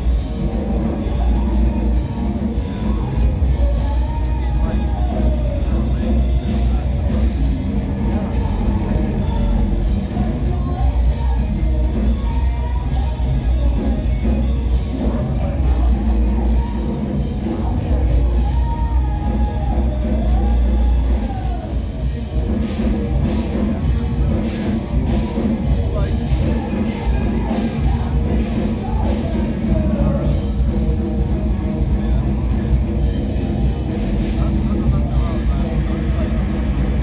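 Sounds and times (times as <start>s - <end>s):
live rock band playing: 0.0s - 37.0s
person singing: 0.0s - 37.0s.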